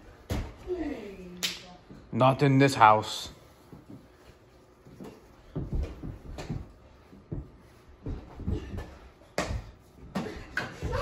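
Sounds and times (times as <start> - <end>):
basketball dribbling on carpet: 4.8 - 11.0.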